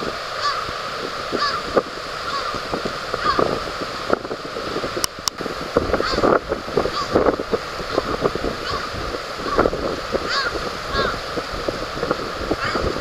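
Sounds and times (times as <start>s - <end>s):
surf: 0.0s - 13.0s
wind: 0.0s - 13.0s
crow cawing: 0.4s - 0.7s, 1.4s - 2.6s, 3.2s - 3.5s, 6.0s - 6.3s, 6.9s - 7.2s, 8.6s - 11.2s, 12.6s - 12.9s.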